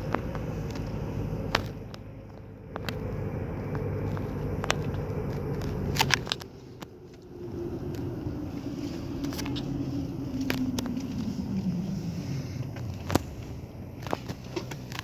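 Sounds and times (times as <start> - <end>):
low outdoor rumble: 0.0 - 15.0.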